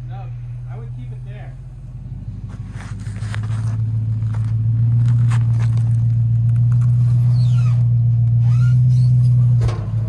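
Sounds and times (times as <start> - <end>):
truck engine under load: 0.0 - 10.0
short squeaks: 6.9 - 9.7.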